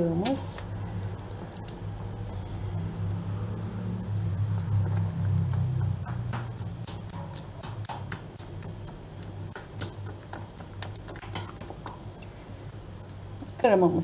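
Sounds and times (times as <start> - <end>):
low steady hum: 0.0 - 14.0
whisk tapping metal bowl: 4.4 - 12.2.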